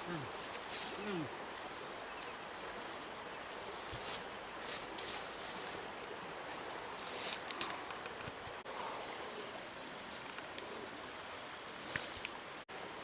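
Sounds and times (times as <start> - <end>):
leaves and undergrowth rustling: 0.0 - 13.0
steady outdoor hiss: 0.0 - 13.0.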